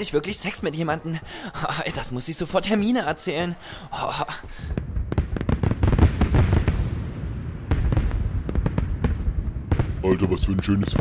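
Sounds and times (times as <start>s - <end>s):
firework crackles and pops: 4.6s - 10.2s.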